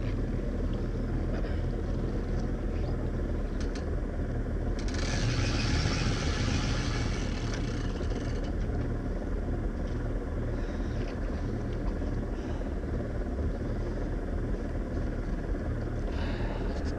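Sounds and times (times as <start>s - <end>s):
engine idling with low rumble: 0.0s - 16.9s.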